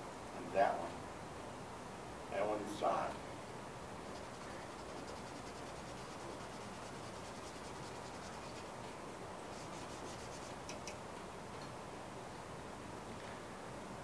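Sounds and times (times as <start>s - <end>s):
room hiss: 0.0s - 14.0s
pencil scratching on paper: 4.0s - 8.8s, 9.5s - 10.8s
small clicks: 10.6s - 11.0s.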